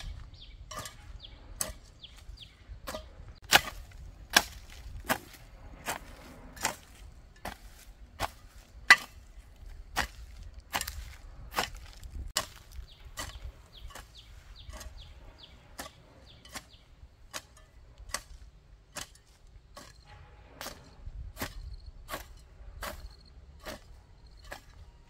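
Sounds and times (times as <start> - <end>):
hoe chopping into soil: 0.0 - 25.0.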